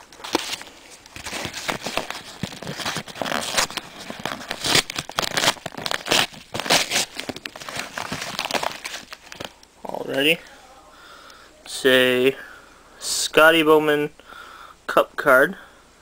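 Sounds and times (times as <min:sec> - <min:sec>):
paper envelope crinkling and tearing: 0:00.0 - 0:09.6.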